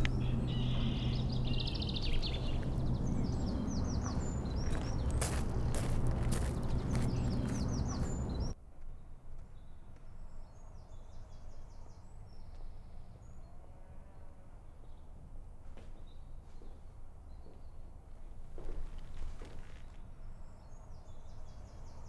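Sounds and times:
faint birdsong through glass: 0:00.0 - 0:05.7
birds chirping: 0:00.0 - 0:08.6
low rumble: 0:00.0 - 0:08.6.

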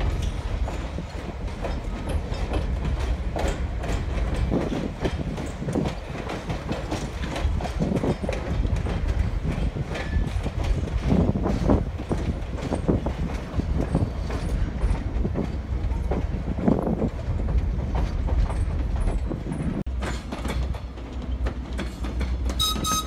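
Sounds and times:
train wheels rumbling on track: 0:00.0 - 0:23.0
wheels clicking over rail joints: 0:00.0 - 0:23.0.

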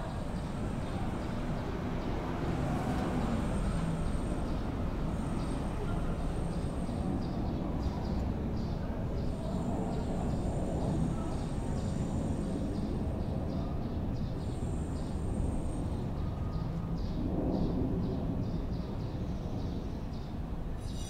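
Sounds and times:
distant traffic rumble: 0:00.0 - 0:21.0
thin high whine: 0:20.8 - 0:21.0.

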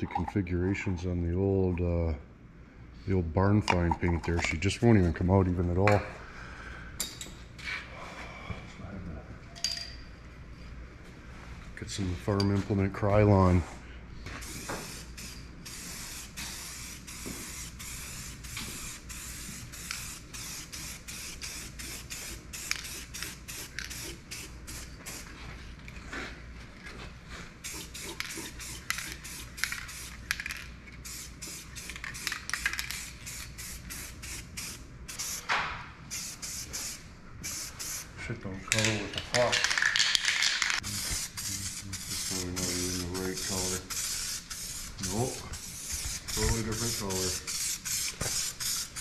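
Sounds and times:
spray paint can hissing: 0:14.4 - 0:25.3, 0:27.6 - 0:35.5, 0:36.1 - 0:38.1, 0:39.6 - 0:49.0.

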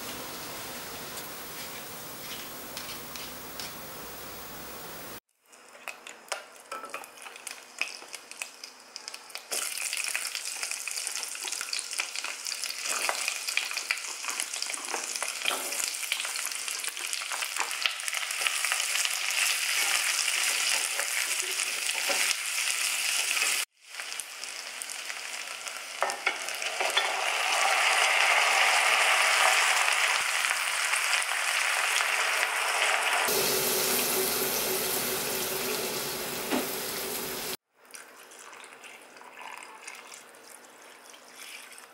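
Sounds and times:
vegetables sizzling in fat: 0:00.0 - 0:05.2, 0:07.2 - 0:37.6
wine pouring into pot: 0:33.3 - 0:37.6.

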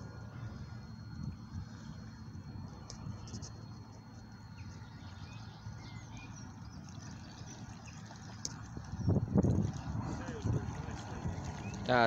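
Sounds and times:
low even rumble: 0:06.0 - 0:12.0.

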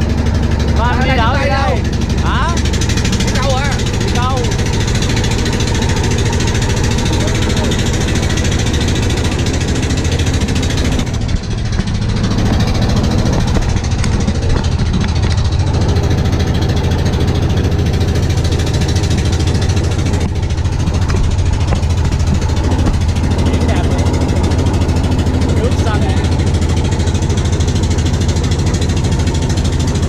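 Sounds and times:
boat engine droning: 0:00.0 - 0:30.0.

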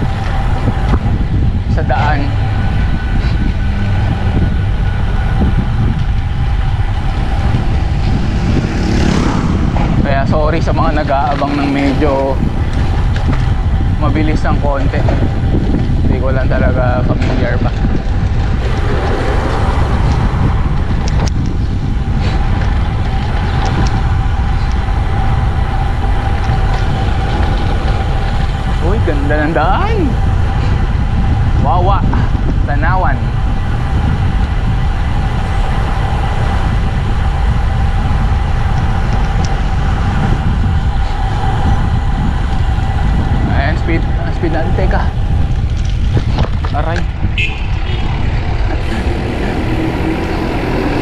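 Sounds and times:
faint steady whine: 0:00.0 - 0:47.3
bicycle road rumble: 0:00.0 - 0:51.0
wind buffeting microphone: 0:00.0 - 0:51.0
bicycle clicks and rattles: 0:45.2 - 0:48.8.

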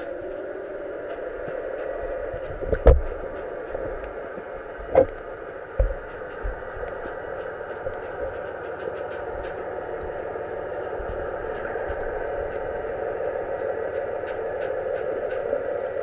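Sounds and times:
boat engine drone underwater: 0:00.0 - 0:16.0
faint clicks: 0:00.0 - 0:16.0
dull knocks: 0:05.8 - 0:07.2.

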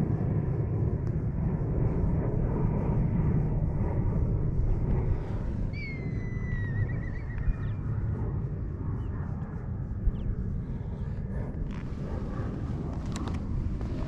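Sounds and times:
steady low rumble: 0:00.0 - 0:14.0.

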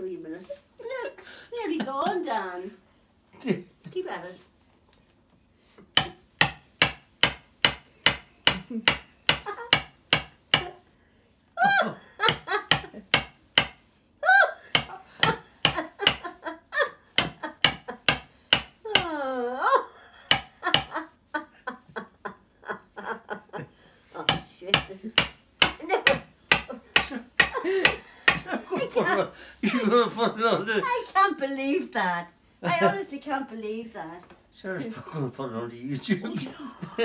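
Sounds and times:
hammer tapping on a tool: 0:05.9 - 0:10.8, 0:12.2 - 0:13.9, 0:14.7 - 0:16.5, 0:17.2 - 0:19.1, 0:20.3 - 0:21.1, 0:24.2 - 0:28.6.

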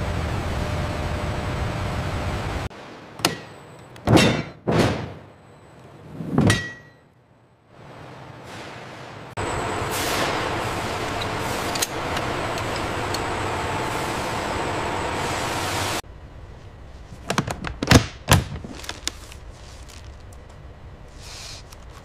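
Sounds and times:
factory machinery noise: 0:00.0 - 0:07.0, 0:07.7 - 0:17.1.

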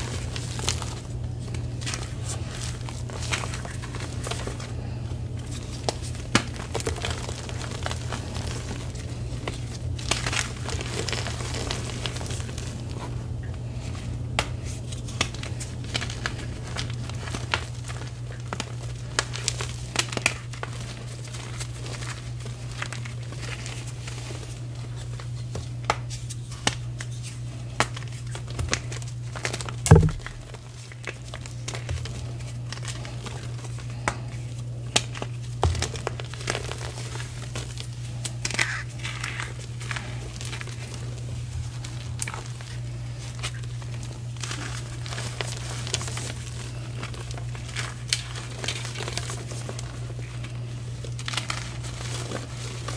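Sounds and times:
steady low hum: 0:00.0 - 0:52.9
loud knock: 0:29.9 - 0:30.4.

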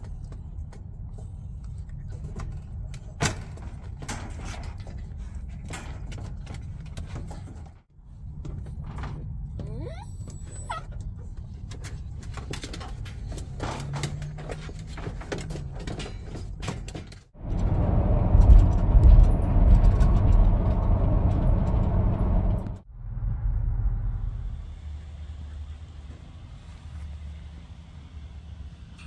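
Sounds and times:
rushing road and wind noise: 0:11.0 - 0:29.0
car interior road rumble: 0:17.4 - 0:27.9.

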